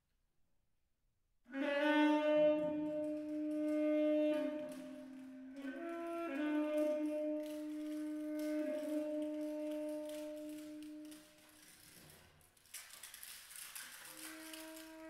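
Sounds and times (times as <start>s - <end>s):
saxophone long low note: 1.5s - 11.4s.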